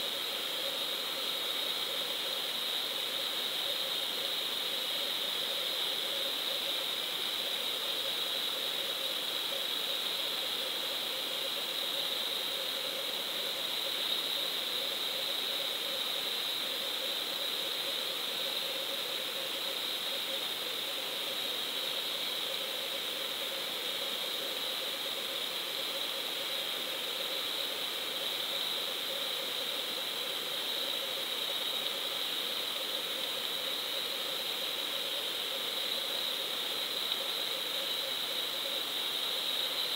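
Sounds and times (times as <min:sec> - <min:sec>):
steady underwater hiss: 0:00.0 - 0:39.9.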